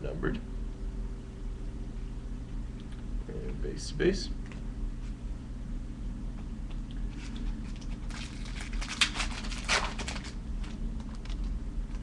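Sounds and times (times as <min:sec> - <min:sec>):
foil wrapper crinkling and tearing: 0:07.2 - 0:12.0.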